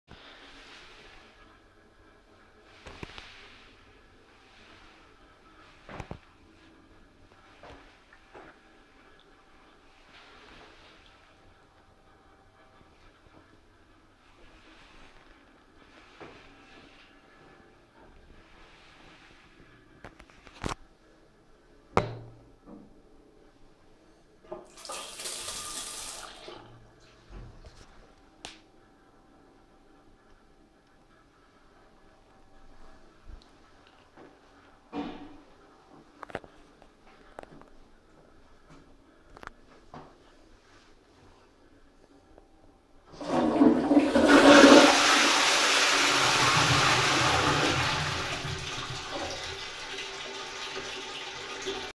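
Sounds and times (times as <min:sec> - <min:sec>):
toilet cistern flushing: 0:24.6 - 0:26.8, 0:43.1 - 0:51.9.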